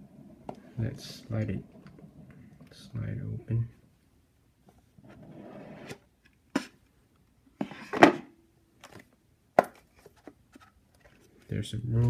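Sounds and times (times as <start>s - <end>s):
cardboard sliding on cardboard: 5.0s - 6.0s.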